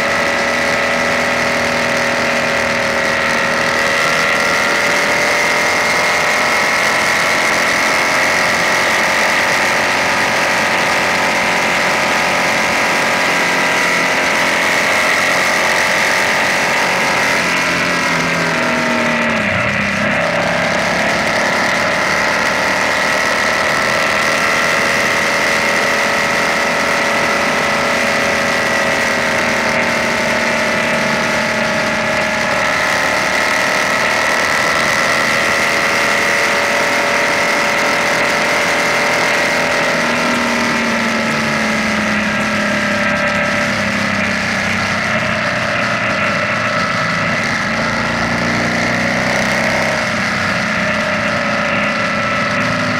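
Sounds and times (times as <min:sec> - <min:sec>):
motorcycle engine cruising: 0:00.0 - 0:52.9
road noise: 0:00.0 - 0:52.9.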